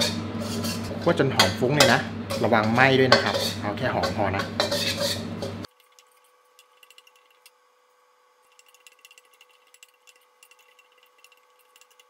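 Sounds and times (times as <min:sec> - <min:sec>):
person speaking: 0:00.9 - 0:04.7.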